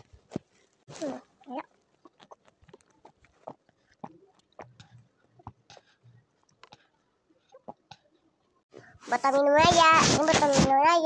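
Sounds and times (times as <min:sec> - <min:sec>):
mouth smacks and clicks: 0:01.0 - 0:08.2.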